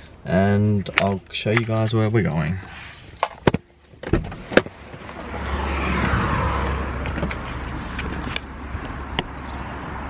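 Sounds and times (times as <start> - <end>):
car passing: 4.7 - 10.0.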